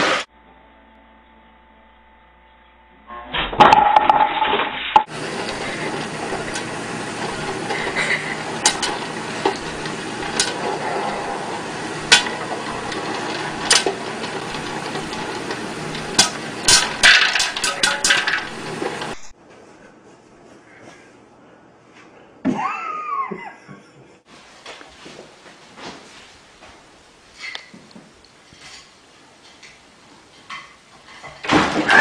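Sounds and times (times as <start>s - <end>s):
popcorn popper hissing: 0.0s - 0.3s, 3.8s - 19.3s
loud clatter: 3.5s - 19.3s
popcorn kernels popping: 5.1s - 19.3s.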